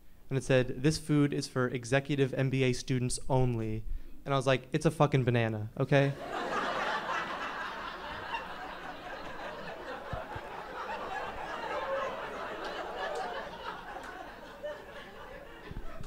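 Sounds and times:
audience laughing: 0:06.1 - 0:16.0.

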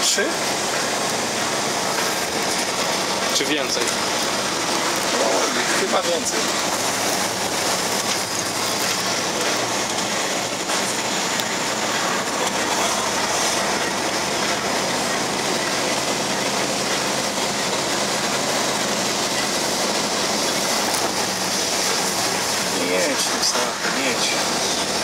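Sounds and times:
road and wind noise: 0:00.0 - 0:25.0
truck diesel engine running: 0:00.0 - 0:25.0.

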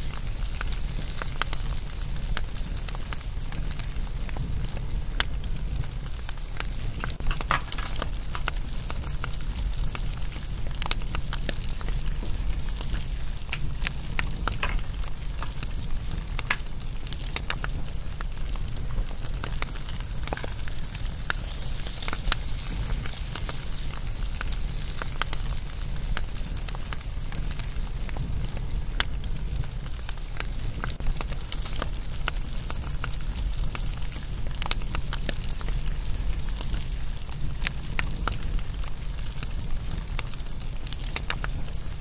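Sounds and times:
bonfire crackling: 0:00.0 - 0:42.0.

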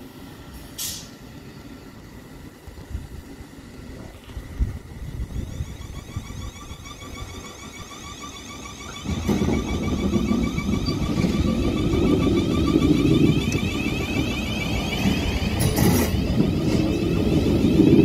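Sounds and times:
train wheels rumbling: 0:02.0 - 0:18.0
train traction motor whining: 0:04.2 - 0:18.0.

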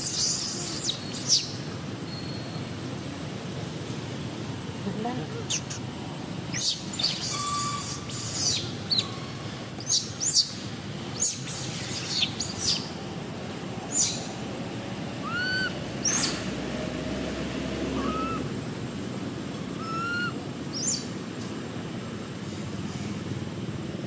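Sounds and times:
baby monkey screaming: 0:00.0 - 0:01.6, 0:06.5 - 0:09.1, 0:09.8 - 0:10.6, 0:11.2 - 0:12.9, 0:15.2 - 0:16.4, 0:18.0 - 0:18.5, 0:19.8 - 0:21.0.

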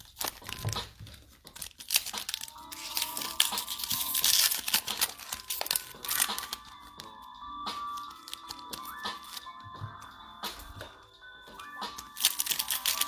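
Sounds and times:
foil wrapper crinkling and tearing: 0:00.0 - 0:07.1, 0:07.8 - 0:09.5, 0:11.9 - 0:13.0.

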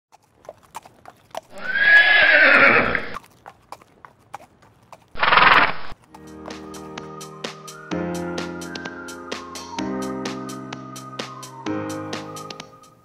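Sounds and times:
breathy horse sound: 0:00.1 - 0:06.1
hoof clicks: 0:00.1 - 0:06.2
horse whinnying: 0:01.5 - 0:03.2, 0:05.2 - 0:06.0
music: 0:06.0 - 0:13.0.

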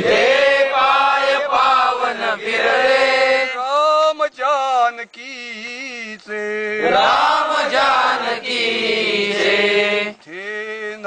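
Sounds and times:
men chanting a patriotic song: 0:00.0 - 0:11.0.

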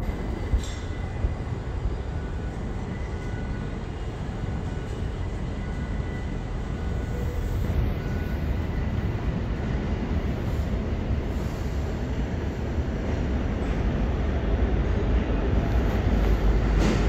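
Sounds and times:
subway train rumbling: 0:00.0 - 0:17.0.

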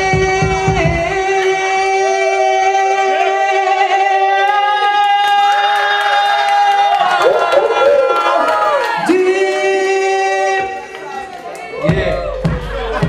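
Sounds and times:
hip-hop music over sound system: 0:00.0 - 0:03.2, 0:11.8 - 0:13.0
low kick drum thumps: 0:11.9 - 0:13.0.

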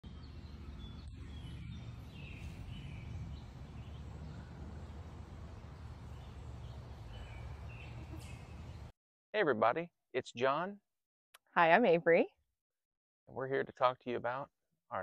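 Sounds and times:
low rumble: 0:00.0 - 0:07.8
bird chirps: 0:00.0 - 0:08.9.

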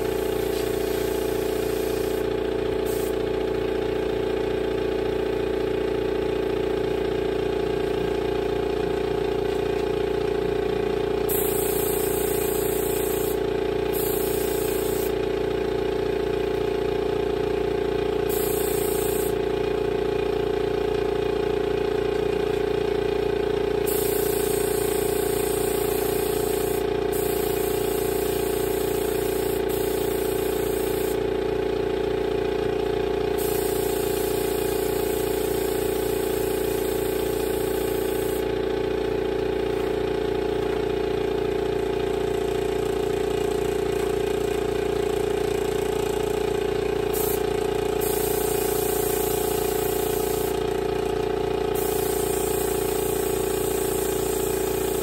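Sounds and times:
spray gun hissing: 0:00.0 - 0:03.2, 0:11.3 - 0:15.2, 0:18.3 - 0:19.4, 0:23.9 - 0:31.2, 0:33.4 - 0:38.4, 0:47.1 - 0:47.4, 0:48.0 - 0:50.6, 0:51.8 - 0:55.0
air compressor humming: 0:00.0 - 0:55.0.

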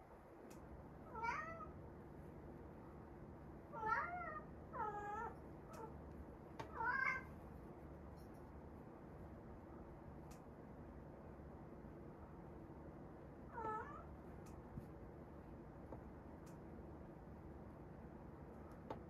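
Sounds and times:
cat meowing: 0:01.1 - 0:01.7, 0:03.7 - 0:05.9, 0:06.7 - 0:07.3, 0:13.5 - 0:14.1.

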